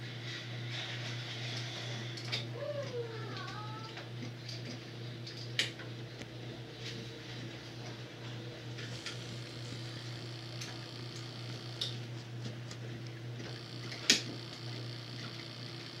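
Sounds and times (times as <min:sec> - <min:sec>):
low hum: 0:08.5 - 0:16.0.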